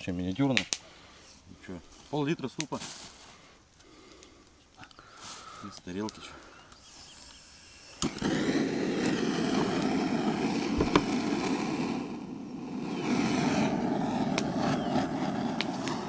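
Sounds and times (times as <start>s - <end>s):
gas torch flame rushing: 6.1s - 16.0s.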